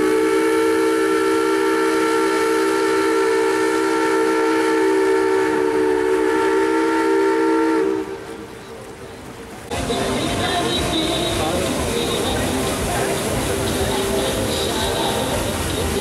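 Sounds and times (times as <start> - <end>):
steam whistle chord blast: 0.0 - 8.2.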